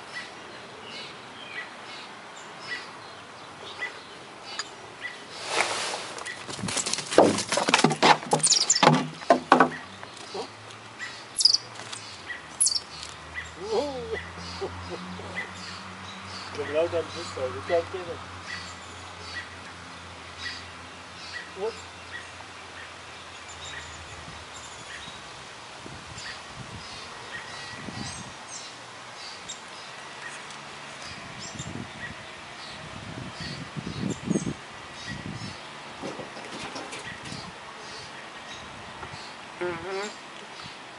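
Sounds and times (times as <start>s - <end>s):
outdoor background noise: 0.0s - 40.9s
close knocks and rustles: 5.4s - 10.3s, 36.0s - 37.4s
high bird chirps: 8.4s - 8.9s, 11.1s - 13.6s.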